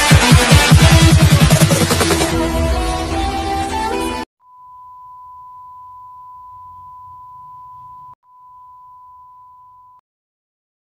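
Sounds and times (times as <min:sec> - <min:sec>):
electronic dance music: 0:00.0 - 0:04.3
electronic beep tone: 0:04.4 - 0:10.0.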